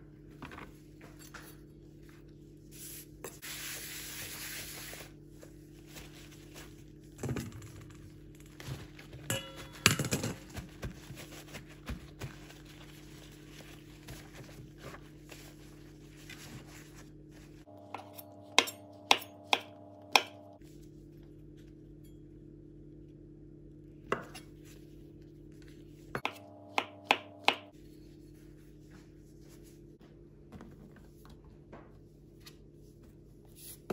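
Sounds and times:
low hum: 0:05.6 - 0:30.5
knife tapping on cutting board: 0:26.2 - 0:27.7.

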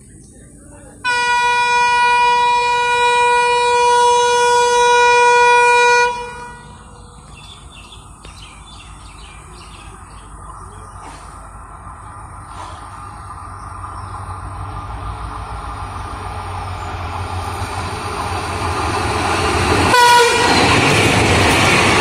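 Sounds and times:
low train rumble: 0:00.0 - 0:22.0
train horn long note: 0:01.1 - 0:07.0, 0:19.8 - 0:20.9
birds chirping: 0:06.2 - 0:17.7.

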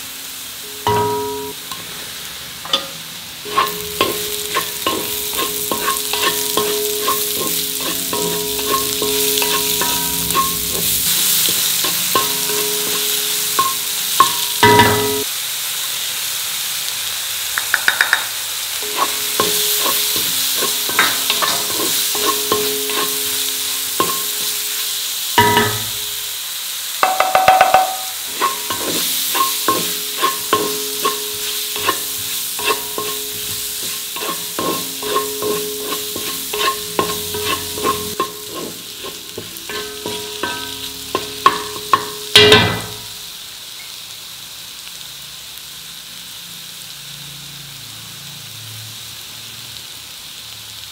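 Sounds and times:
vegetables sizzling in oil: 0:00.0 - 0:50.9
spatula scraping a pan: 0:02.7 - 0:15.2, 0:18.8 - 0:24.8, 0:28.2 - 0:42.6.

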